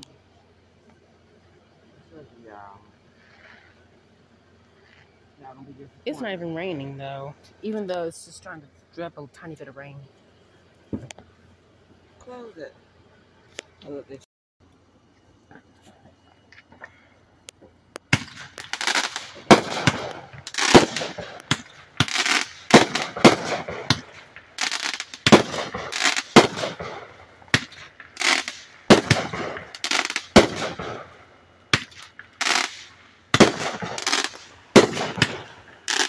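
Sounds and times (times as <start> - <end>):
fireworks crackling: 2.0 - 12.7, 17.4 - 36.0
fireworks bangs: 18.0 - 36.0.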